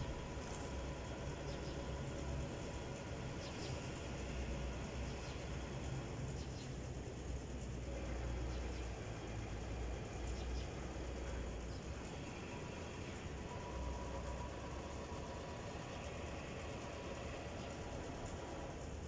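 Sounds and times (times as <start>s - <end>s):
distant engine rumble: 0.0s - 19.0s.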